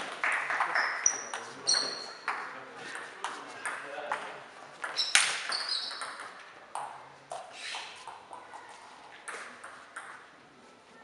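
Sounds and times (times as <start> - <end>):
table tennis balls bouncing: 0.0 - 10.4.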